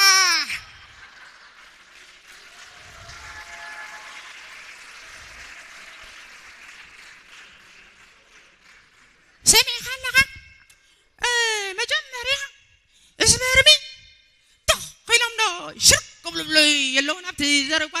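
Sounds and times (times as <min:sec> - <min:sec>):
audience clapping: 0:00.0 - 0:09.4.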